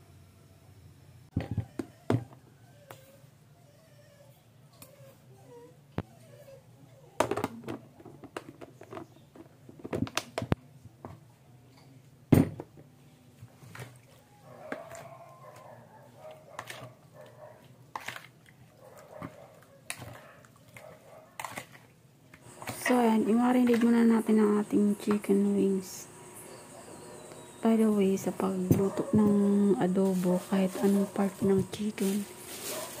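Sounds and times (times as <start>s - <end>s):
hand mixing food in plastic bowl: 13.4s - 26.3s, 27.0s - 33.0s
faint wavering whines: 22.5s - 32.6s.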